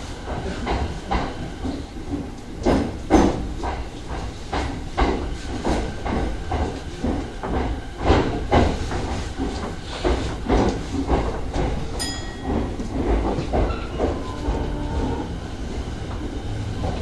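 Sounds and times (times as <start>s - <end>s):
train rumbling: 0.0s - 17.0s
wheels clacking over rails: 0.3s - 17.0s.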